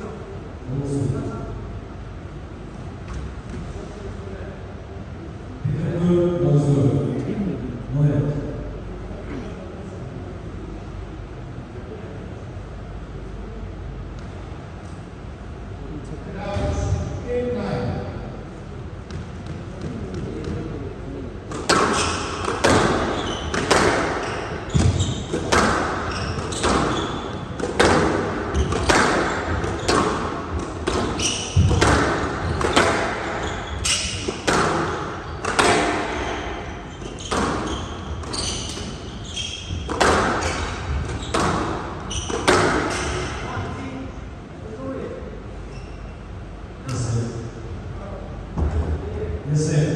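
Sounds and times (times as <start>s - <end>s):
squash ball cracking off rackets and walls: 21.5s - 39.0s, 39.6s - 43.4s.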